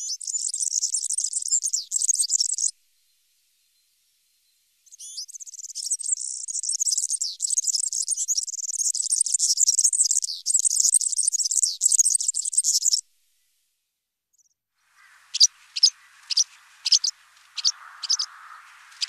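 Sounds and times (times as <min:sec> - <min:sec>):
bird high jingling twitter: 0:15.0 - 0:19.0.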